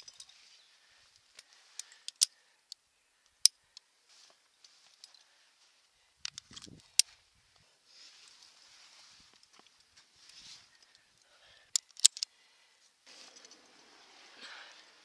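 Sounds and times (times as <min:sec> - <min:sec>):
climbing gear clicking on rock: 0:01.1 - 0:03.9, 0:10.7 - 0:12.4
scuffing rustle: 0:07.9 - 0:10.7.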